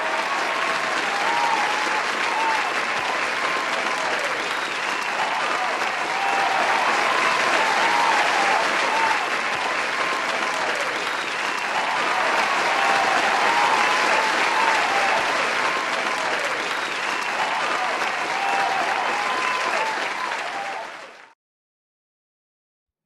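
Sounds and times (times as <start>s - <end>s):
crowd applauding: 0.0s - 21.4s.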